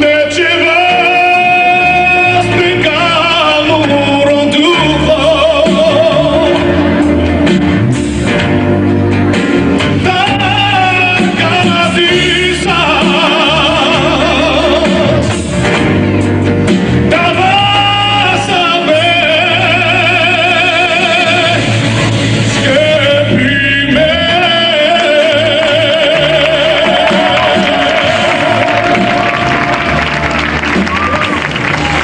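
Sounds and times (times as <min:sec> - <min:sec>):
man singing gospel: 0:00.0 - 0:07.0, 0:10.0 - 0:15.4, 0:17.1 - 0:21.8, 0:22.5 - 0:29.3
amplified backing music: 0:00.0 - 0:32.0
bass line: 0:00.0 - 0:32.0.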